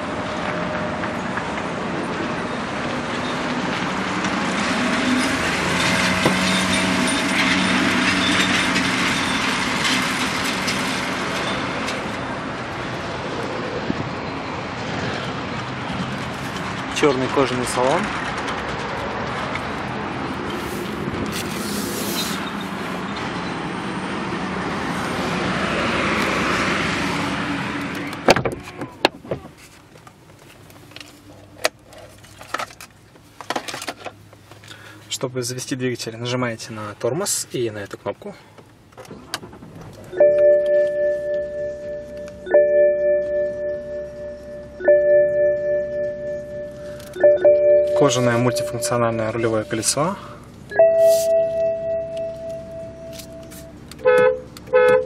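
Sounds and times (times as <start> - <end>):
road traffic hum: 0.0 - 55.0
vehicle passing by: 3.4 - 28.2
car warning gong chiming: 40.1 - 55.0.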